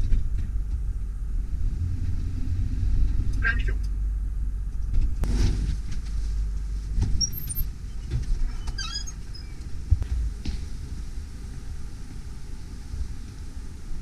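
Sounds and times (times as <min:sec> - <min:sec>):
short squeaks: 0:07.1 - 0:09.7.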